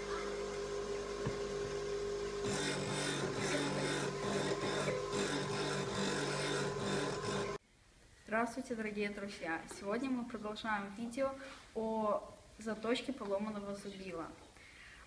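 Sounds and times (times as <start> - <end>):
bench grinder humming: 0.0 - 7.6
chisel grinding on wheel: 2.4 - 7.6.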